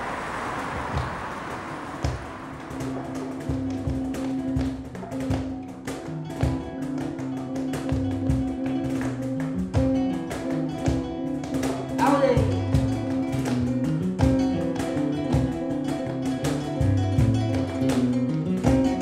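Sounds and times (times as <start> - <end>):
flamenco guitar music: 0.7 - 19.0
percussive guitar strikes: 0.8 - 19.0.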